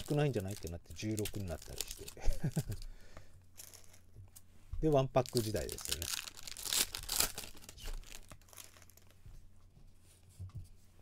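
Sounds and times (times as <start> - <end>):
cards rustling: 0.0 - 2.8, 3.6 - 4.0, 5.2 - 9.2
plastic wrapper crinkling and tearing: 0.0 - 2.9, 3.6 - 4.1, 4.9 - 9.2.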